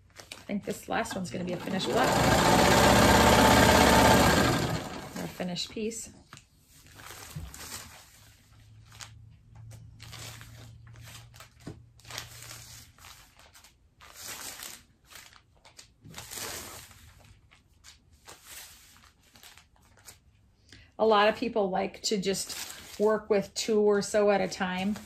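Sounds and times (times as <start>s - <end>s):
paper and fabric rustling: 5.3s - 20.4s, 22.3s - 25.0s.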